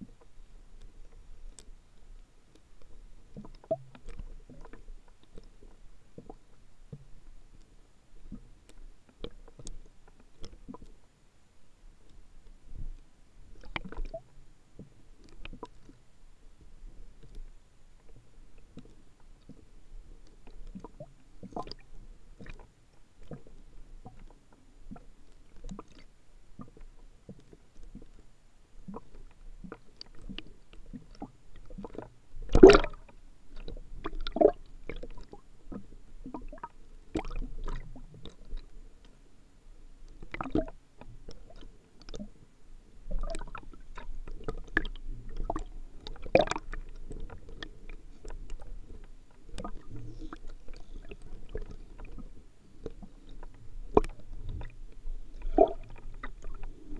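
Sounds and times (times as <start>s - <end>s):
muffled underwater water movement: 0.0s - 56.9s.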